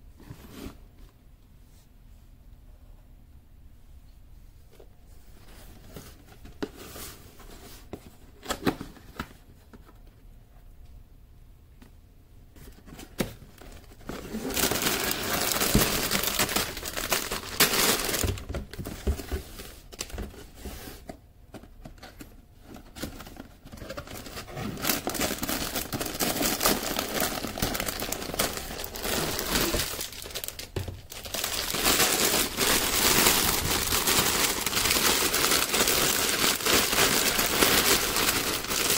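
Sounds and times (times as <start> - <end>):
plastic bags crinkling: 13.6 - 18.8, 23.1 - 38.9.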